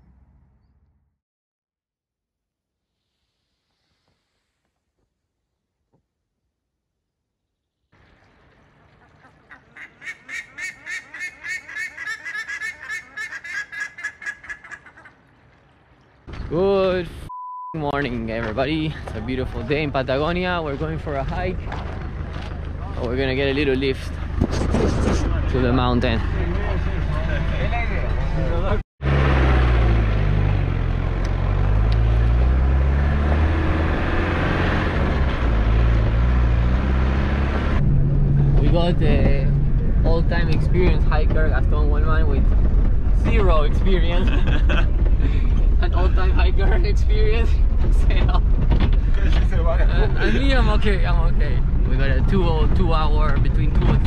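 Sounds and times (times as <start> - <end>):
large birds calling rapidly: 9.0 - 15.3
off-road vehicle engine: 17.9 - 54.0.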